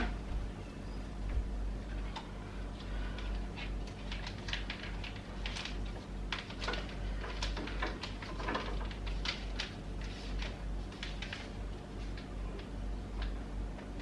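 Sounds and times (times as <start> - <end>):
low hum: 0.0 - 7.5.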